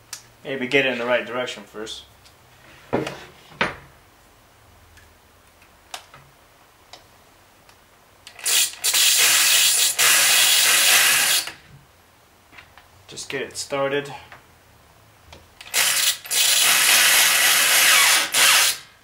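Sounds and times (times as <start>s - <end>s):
electric drill driving screw into wood: 8.3s - 11.6s, 15.6s - 18.9s.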